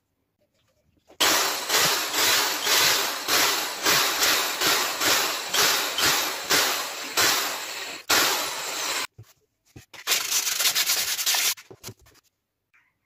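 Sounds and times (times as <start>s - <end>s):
sandpaper rubbing on plywood: 10.0s - 11.6s.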